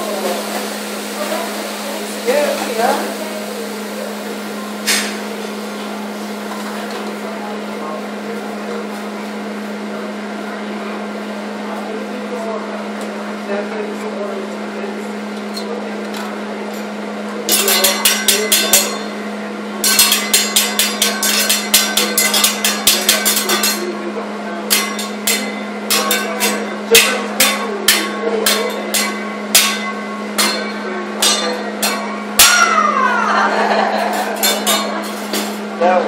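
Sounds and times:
steady hum: 0.0s - 36.0s
metal spatula clacking on grill: 17.5s - 19.2s, 19.8s - 24.0s, 24.7s - 32.8s, 34.0s - 35.6s
loud metal clang: 19.8s - 23.9s, 24.7s - 33.0s, 34.1s - 35.7s.

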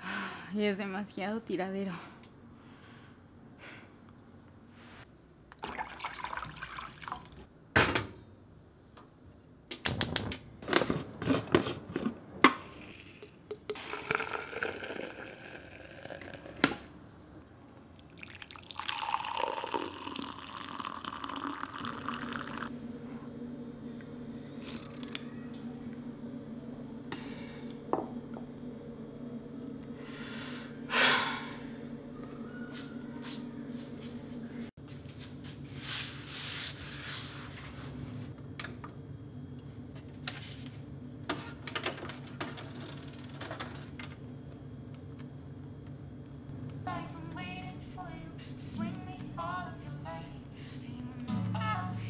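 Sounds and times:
hot water pouring: 5.6s - 7.4s, 13.8s - 16.7s, 18.0s - 22.7s
steady low hum: 10.4s - 52.0s.

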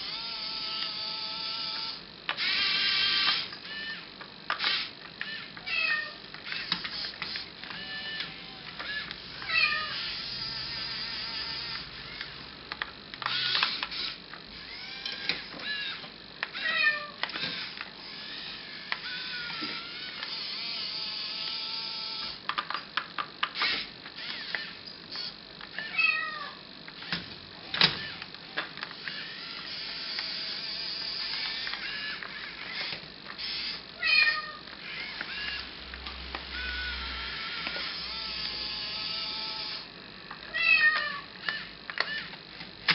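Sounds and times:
electric whir of toy excavator: 0.0s - 26.1s, 26.9s - 39.9s, 40.6s - 42.9s.

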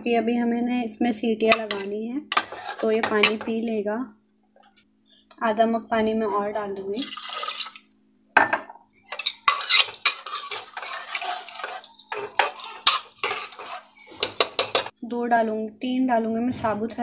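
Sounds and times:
ladle scraping and clinking pot: 1.4s - 3.5s, 9.0s - 14.9s
water pouring and splashing: 7.0s - 8.1s.

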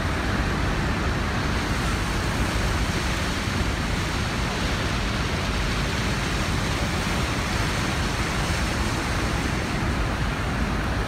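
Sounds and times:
churning whitewater: 0.0s - 11.0s
loud waterfall roar: 0.0s - 11.0s.

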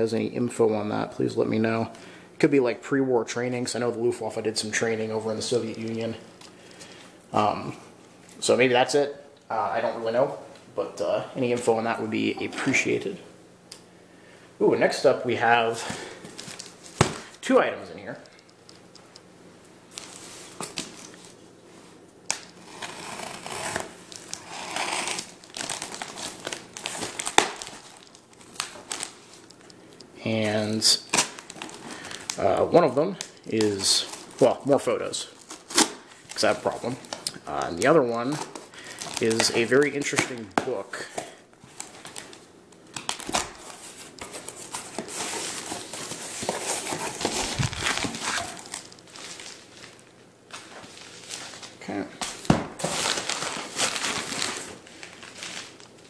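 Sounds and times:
plastic wrap crinkling: 15.7s - 17.6s, 19.9s - 56.0s
tape crackling and tearing: 22.3s - 29.8s, 30.9s - 32.6s, 35.3s - 40.6s, 41.7s - 56.0s
knife slitting packing tape: 22.6s - 26.0s
cardboard flaps rustling: 43.3s - 49.5s.

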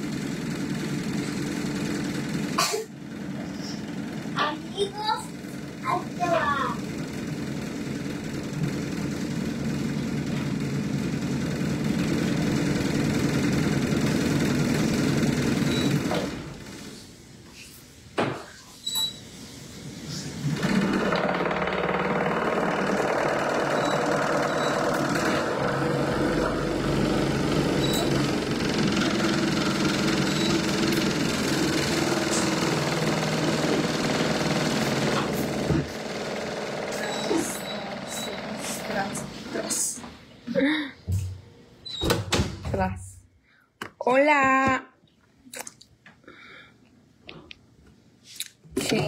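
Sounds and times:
motor running steadily: 0.0s - 17.0s, 20.1s - 41.2s.

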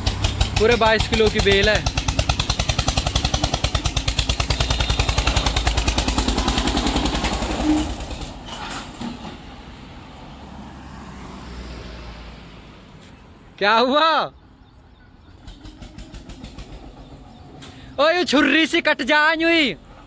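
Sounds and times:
tractor diesel engine chugging: 0.0s - 9.8s, 15.2s - 18.6s.

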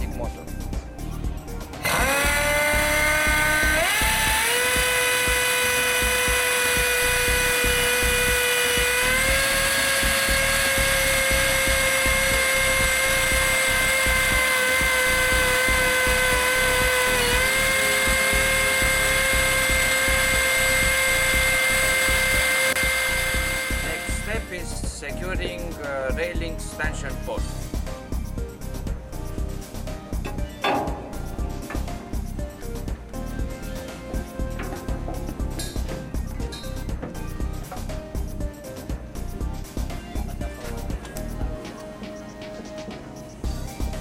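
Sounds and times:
air motor winch whine: 1.7s - 24.9s.

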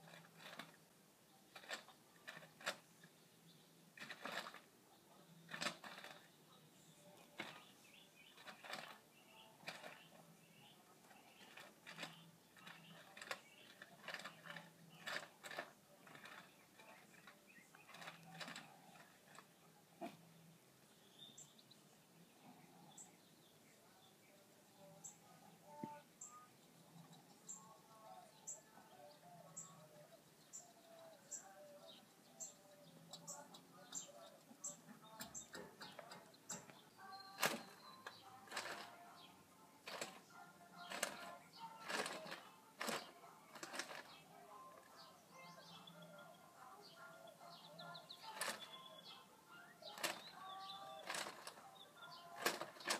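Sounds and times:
high bird chirp: 29.4s - 39.3s
squirrel rummaging in plastic bag: 37.2s - 44.2s, 49.8s - 52.9s.

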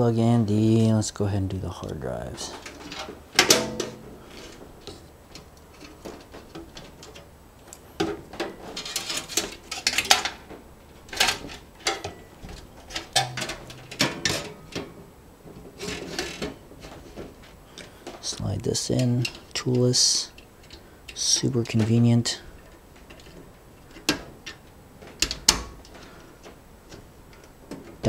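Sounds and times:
clicks inside metal computer case: 2.6s - 4.6s, 8.0s - 15.0s.

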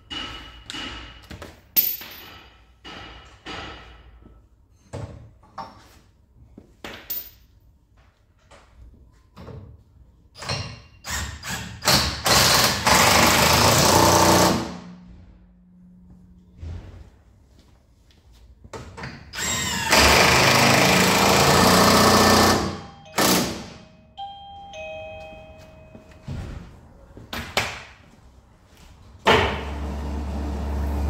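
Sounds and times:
tools and parts clinking: 0.0s - 2.8s, 6.8s - 7.6s
power tool running: 12.2s - 14.8s, 19.4s - 23.6s.

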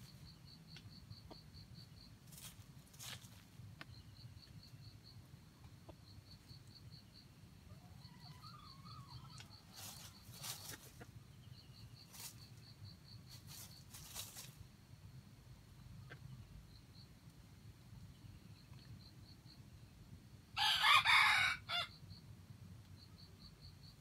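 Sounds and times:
insect chirping: 0.0s - 24.0s
rooster scratching in dry leaves: 2.3s - 3.4s, 9.7s - 11.0s, 12.1s - 12.4s, 13.3s - 14.6s.

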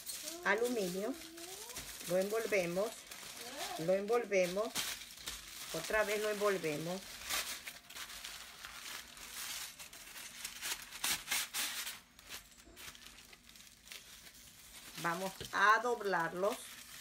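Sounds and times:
aluminium foil crinkling: 0.0s - 17.0s.

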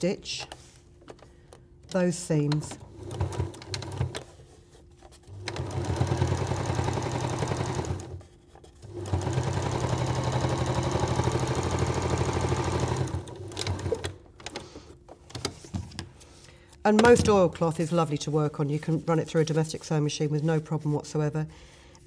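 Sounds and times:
electric sewing machine running: 5.4s - 8.2s, 8.8s - 14.2s.

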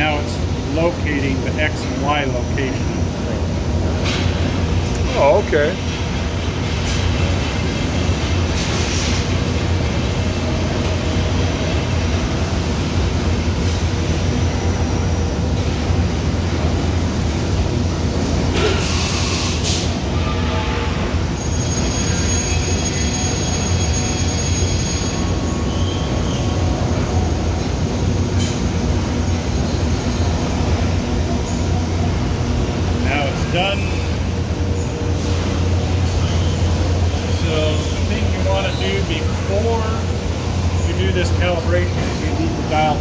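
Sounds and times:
machine hum and hiss: 0.0s - 43.0s
sharp air hiss: 18.6s - 20.0s.

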